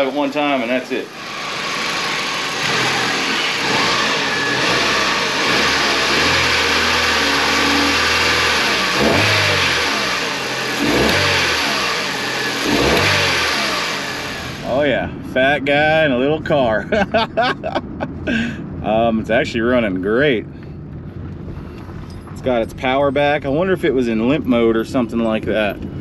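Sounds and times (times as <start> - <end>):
car engine revving: 0.0 - 20.0.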